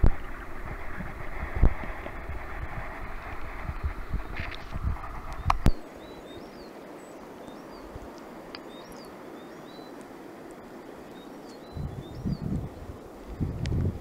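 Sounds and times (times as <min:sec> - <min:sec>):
muffled water rumble: 0:00.0 - 0:06.6, 0:11.6 - 0:14.0
faint steady hiss: 0:00.0 - 0:14.0
small birds chirping: 0:03.3 - 0:13.9.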